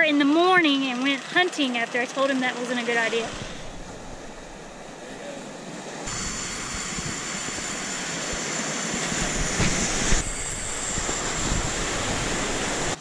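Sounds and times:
wind: 0.0 - 13.0
fishing reel whining: 6.1 - 13.0.

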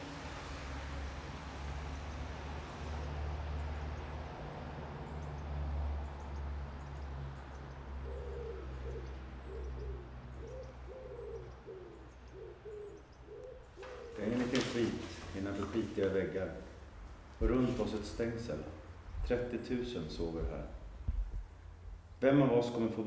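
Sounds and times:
small birds chirping: 5.0 - 22.2
pigeon cooing: 8.0 - 15.2
steady low rumble: 18.7 - 22.2.

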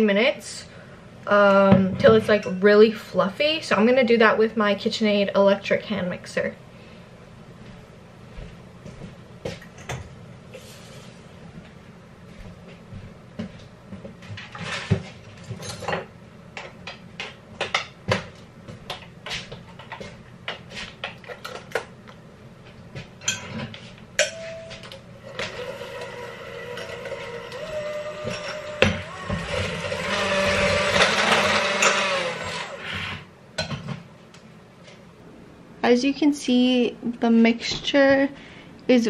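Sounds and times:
electric hand mixer whirring: 25.2 - 33.3.

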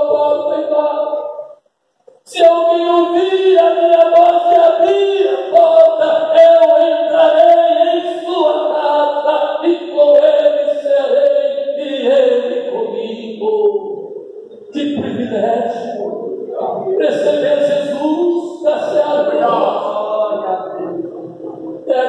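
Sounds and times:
person singing into microphone: 16.6 - 22.0.

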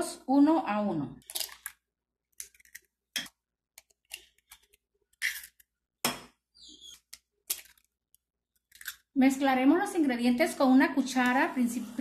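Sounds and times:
eggs cracking into metal pan: 1.2 - 6.4, 7.0 - 9.2.

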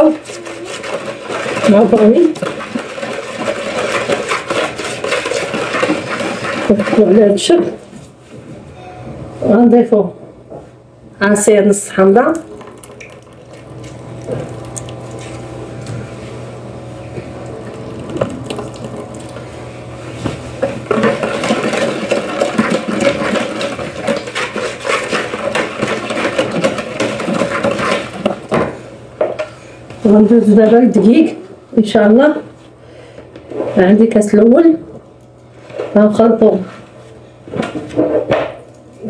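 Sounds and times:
wire whisk beating batter in bowl: 0.0 - 7.6, 20.6 - 28.6
low steady hum: 0.0 - 39.0.

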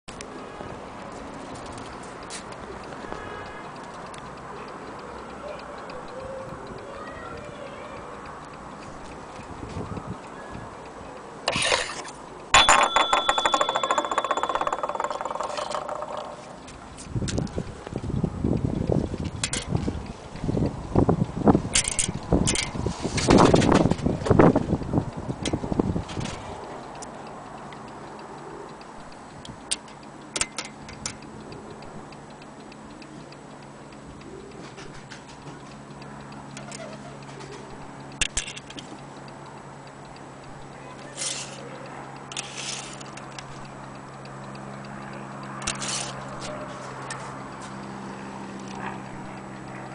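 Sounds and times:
sharp clicks: 1.7 - 12.5, 20.6 - 48.0
clock ticking: 2.2 - 16.8, 26.6 - 48.2
scrape on wooden table: 11.5 - 12.1
bell rattling on its rim: 12.5 - 16.6
clock bell ringing: 12.5 - 16.6.

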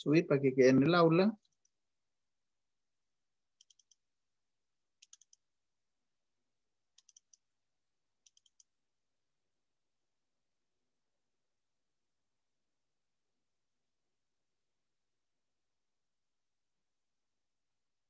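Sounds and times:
faint computer mouse clicks: 3.6 - 4.0, 6.9 - 7.4, 8.2 - 8.7.

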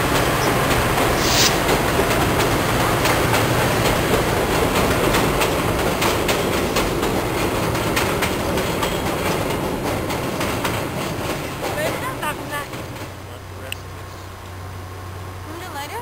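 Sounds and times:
wheels clicking over rail joints: 0.0 - 14.6
train rumbling over bridge: 0.0 - 16.0.

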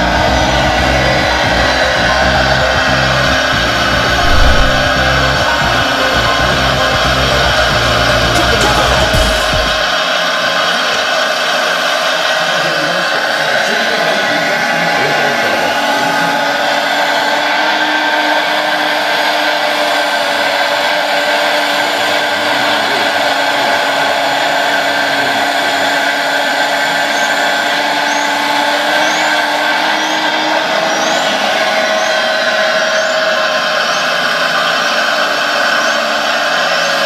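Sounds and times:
hydraulic pump whining: 0.0 - 37.0
short high rising chirps: 4.1 - 5.2.

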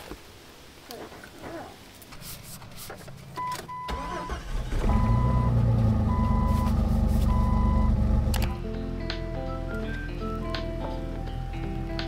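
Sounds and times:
car engine cranking and running: 3.8 - 8.6
electronic warning chime beeping: 4.9 - 8.0.

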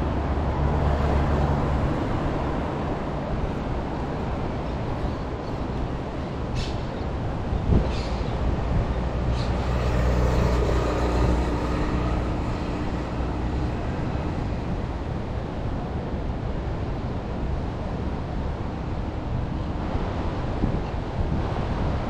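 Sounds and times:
outdoor background noise: 0.0 - 22.0
vehicle engine passing by: 9.3 - 14.9.

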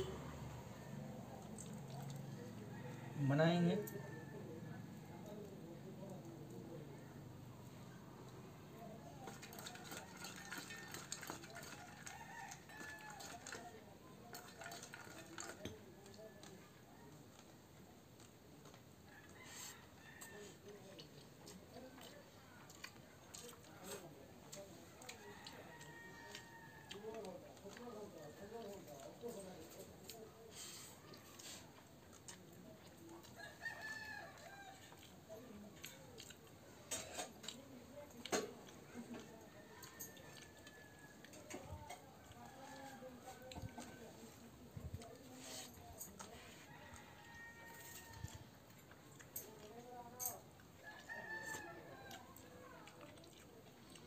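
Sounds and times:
fingers mixing rice on plate: 9.0 - 54.0
rooster crowing: 19.1 - 20.5, 25.1 - 27.2, 46.6 - 48.5, 50.8 - 52.4.

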